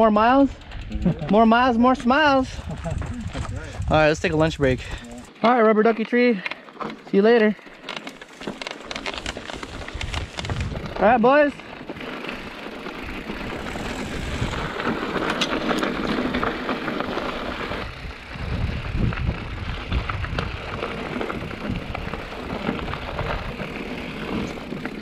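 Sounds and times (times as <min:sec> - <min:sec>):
bike rattling and clicking: 0:00.0 - 0:25.0
wind rumble on microphone: 0:00.5 - 0:05.1, 0:09.5 - 0:11.0, 0:13.2 - 0:14.9, 0:17.5 - 0:24.6
tyres crunching on gravel: 0:06.2 - 0:25.0.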